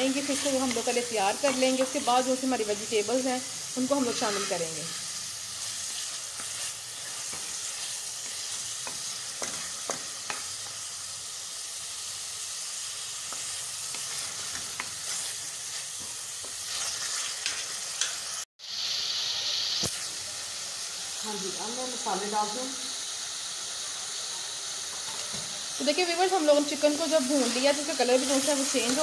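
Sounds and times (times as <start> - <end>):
chicken sizzling in oil: 0.0 - 29.0
wooden spoon scraping and tapping pan: 0.2 - 2.0, 8.2 - 10.5, 13.3 - 15.3.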